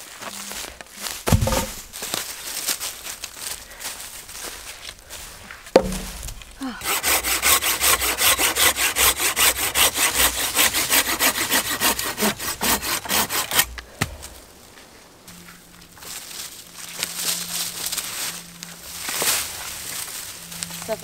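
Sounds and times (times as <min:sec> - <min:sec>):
heavy wooden thump: 0:01.3 - 0:01.9, 0:05.8 - 0:06.5
hand saw cutting log: 0:05.8 - 0:06.1, 0:06.8 - 0:13.8.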